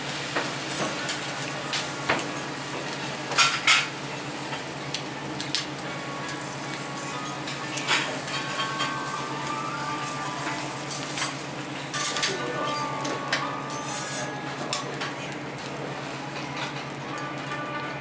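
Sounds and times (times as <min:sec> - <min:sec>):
metal spatulas clinking on griddle: 0:11.9 - 0:12.4.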